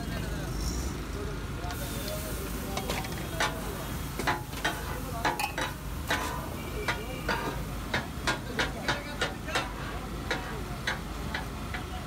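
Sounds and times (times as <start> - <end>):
fish sizzling: 1.8 - 8.4
metal spatulas clanking on griddle: 2.1 - 12.0.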